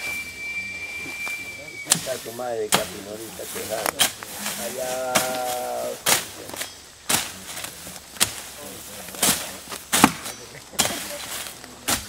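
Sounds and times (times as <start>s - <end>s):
machete chopping cracks: 5.2s - 8.5s, 9.1s - 11.1s.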